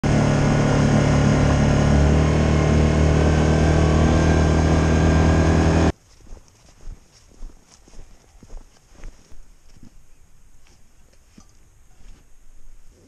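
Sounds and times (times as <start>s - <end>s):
loud steady engine hum: 0.0s - 5.9s
footsteps in snow: 5.9s - 13.0s.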